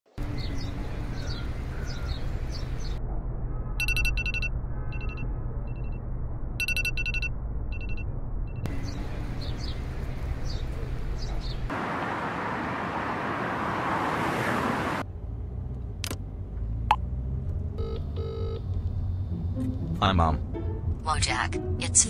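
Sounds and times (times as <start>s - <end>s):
birds chirping: 0.2s - 3.0s, 8.7s - 13.2s
phone ringtone beeps: 3.8s - 6.0s, 6.6s - 8.0s, 17.8s - 18.6s.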